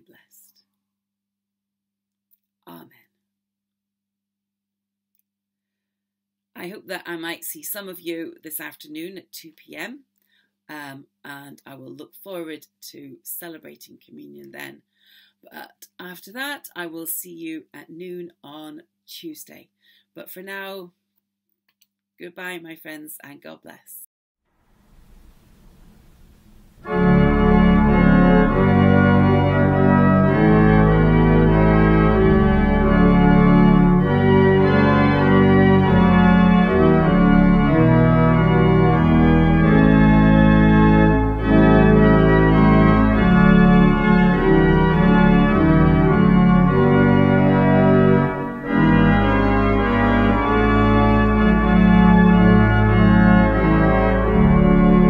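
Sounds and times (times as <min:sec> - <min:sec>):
church pipe organ chords: 0:25.1 - 0:55.0.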